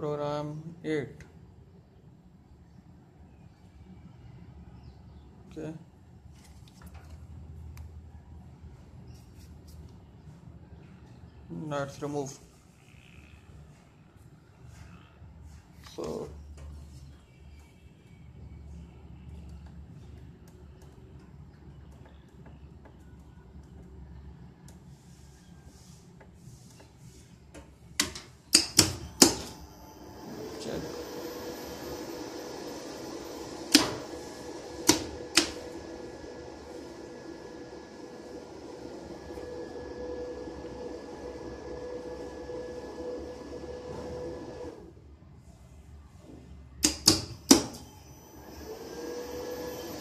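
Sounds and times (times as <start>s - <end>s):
electrical hum with high whine: 0.0s - 50.0s
drive humming: 28.8s - 44.8s.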